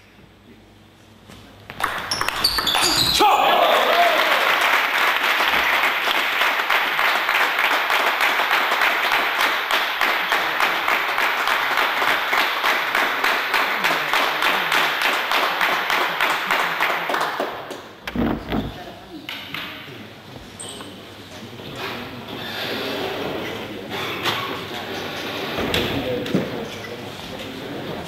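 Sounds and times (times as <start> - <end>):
spectators applauding: 1.8 - 17.8.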